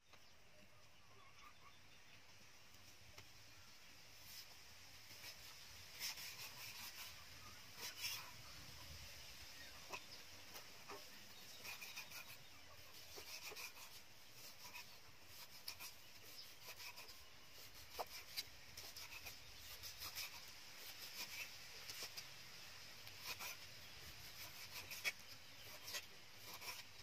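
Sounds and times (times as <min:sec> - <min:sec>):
cleaver cutting meat on wood: 0:05.2 - 0:08.4, 0:09.7 - 0:22.3, 0:23.0 - 0:27.0.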